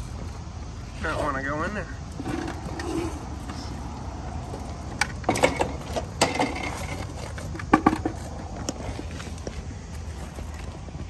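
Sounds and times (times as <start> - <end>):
hard parts knocking and clattering: 4.4 - 8.8.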